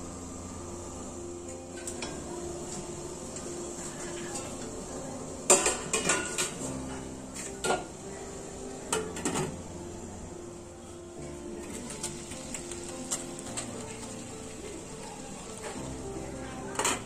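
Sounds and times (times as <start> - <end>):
metal pot clanks and clinks: 5.5 - 6.7.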